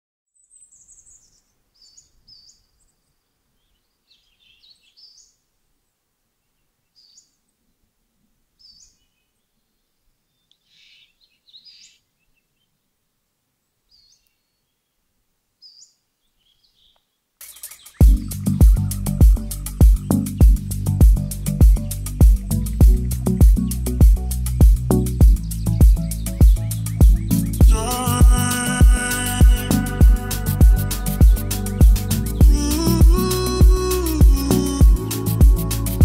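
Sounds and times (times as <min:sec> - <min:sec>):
birds chirping: 0:00.4 - 0:07.9, 0:08.5 - 0:13.0, 0:13.8 - 0:36.0
loud music with heavy bass: 0:18.0 - 0:36.0.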